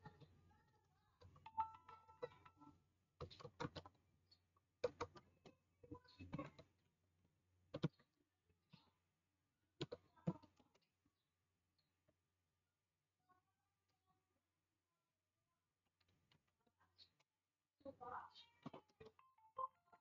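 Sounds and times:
faint keyboard typing: 3.2s - 4.0s, 4.8s - 6.8s, 7.7s - 8.1s.

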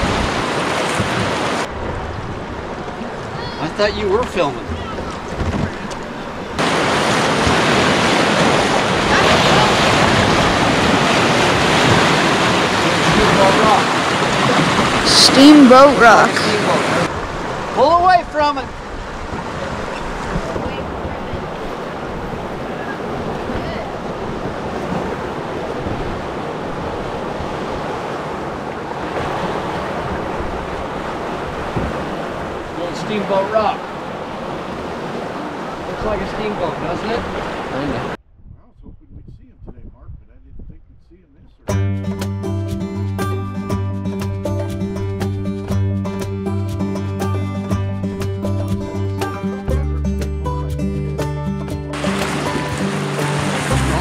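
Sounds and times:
wind rumbling on microphone: 0.0s - 3.6s, 4.2s - 15.4s, 16.6s - 32.8s, 37.1s - 41.6s
river rapids rushing: 0.0s - 38.2s, 51.9s - 54.0s.

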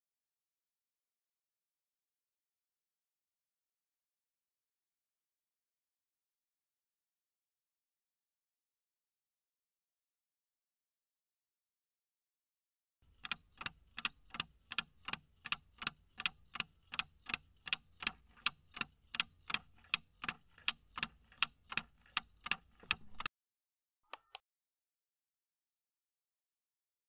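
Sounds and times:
short clicks: 24.1s - 24.4s.

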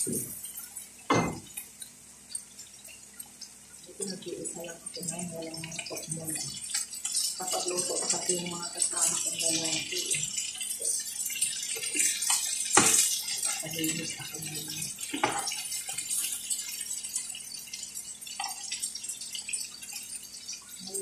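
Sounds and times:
chicken sizzling in oil: 0.0s - 21.0s
utensils knocking on pan: 1.1s - 1.6s, 12.3s - 14.5s, 15.1s - 16.0s.

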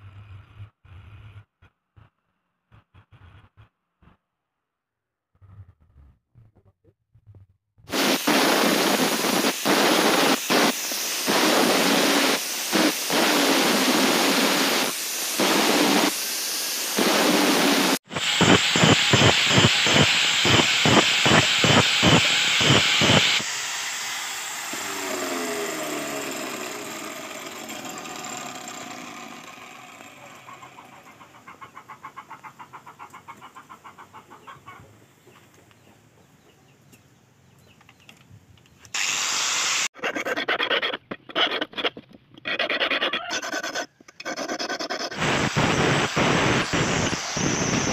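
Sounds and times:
angle grinder grinding steel: 7.9s - 31.2s, 39.0s - 47.9s.

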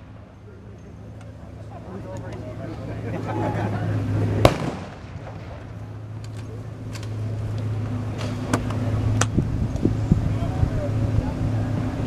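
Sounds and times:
tank engines idling: 0.0s - 12.0s
blank gunfire: 4.4s - 5.6s.

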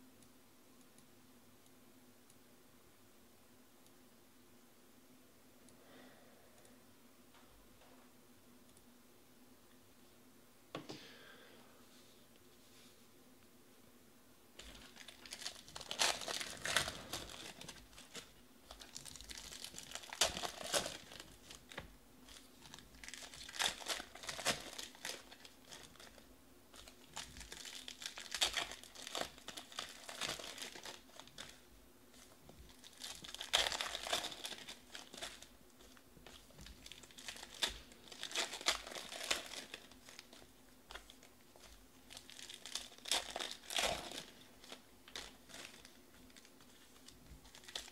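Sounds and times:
foil wrappers crinkling and tearing: 14.6s - 47.9s.

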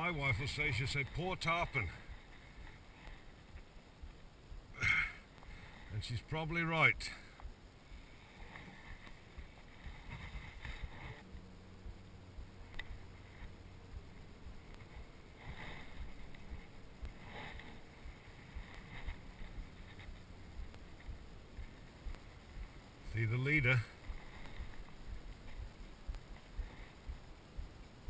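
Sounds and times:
faint steady hum: 0.0s - 28.0s
wind and water noise: 0.0s - 28.0s
soft swishes: 5.3s - 27.7s.

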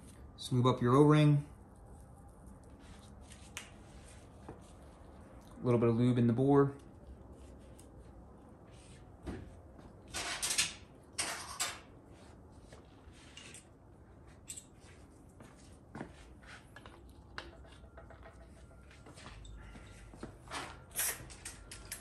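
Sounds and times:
light clicks of parts: 21.0s - 22.0s.

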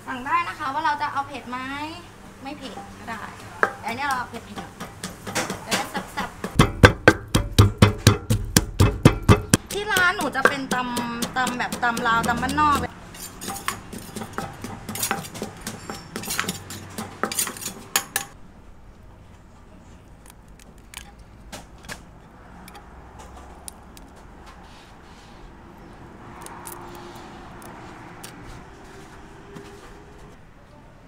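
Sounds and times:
pestle pounding in a clay mortar: 3.6s - 18.4s
crab shell cracking by hand: 20.2s - 21.2s.

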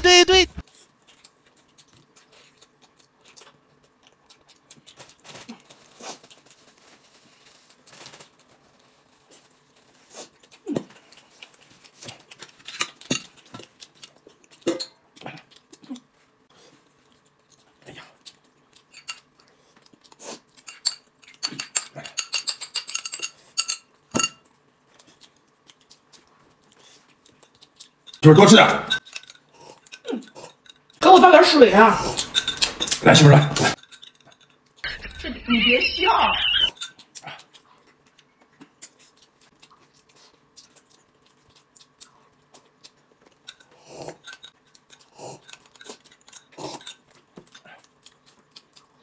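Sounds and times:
soft chewing: 0.6s - 22.2s, 23.3s - 28.2s, 29.0s - 31.0s, 33.6s - 35.4s, 36.5s - 49.0s
chopsticks clinking on ceramic bowl: 18.9s - 19.3s, 20.6s - 24.5s, 32.1s - 35.2s.

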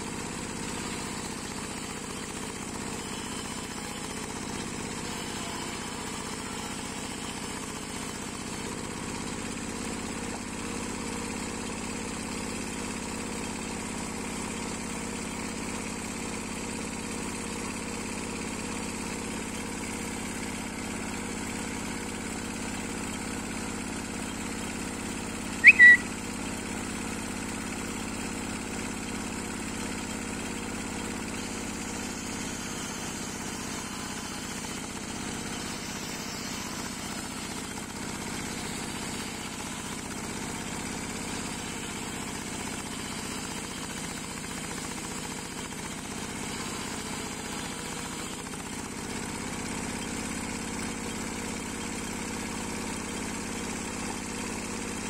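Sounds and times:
diesel engine running under load: 0.0s - 55.0s
high whistle notes: 25.6s - 26.1s
saw blade cutting log: 31.4s - 49.0s.

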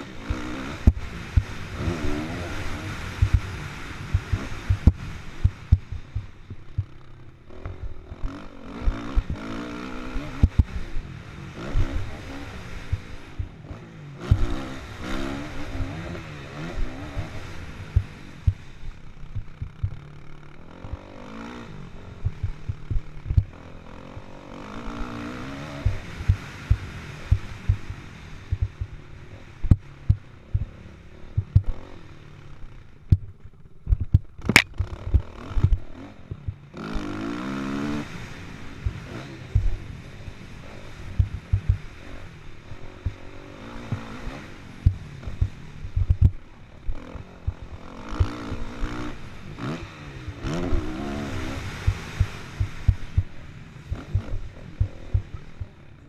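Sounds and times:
motocross engine revving: 0.0s - 56.0s
short low thumps: 4.1s - 7.0s, 19.3s - 20.2s, 22.2s - 23.5s, 25.8s - 27.9s, 28.5s - 29.0s, 29.6s - 30.8s, 31.4s - 31.7s, 33.1s - 36.7s, 39.6s - 39.8s, 41.2s - 41.9s, 44.8s - 46.4s
sharp click: 34.0s - 34.9s.

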